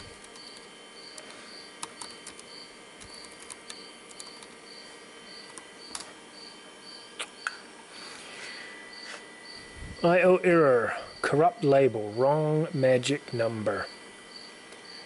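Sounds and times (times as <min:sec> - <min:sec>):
keyboard typing clicks: 0:00.0 - 0:04.6, 0:05.4 - 0:06.1.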